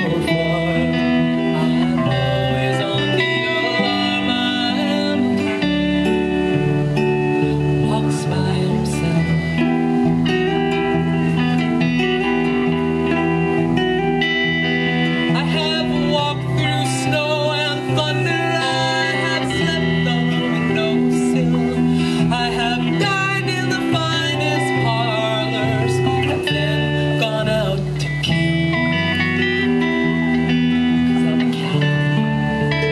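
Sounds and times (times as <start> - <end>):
woman singing: 0.0 - 6.6, 7.4 - 9.9, 15.3 - 28.3
electric bass: 0.0 - 32.9
electric guitar: 0.0 - 32.9.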